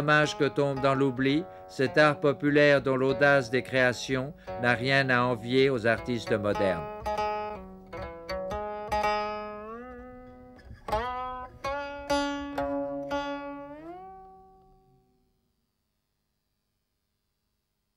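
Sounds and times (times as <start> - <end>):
plucked string instrument notes: 0.0 - 15.0.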